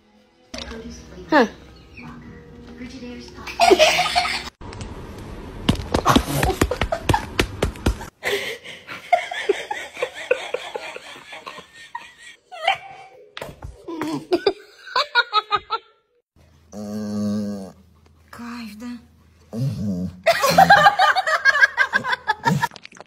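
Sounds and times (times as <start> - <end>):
people laughing: 3.6 - 4.5, 8.3 - 13.2, 13.9 - 15.9, 20.3 - 22.7.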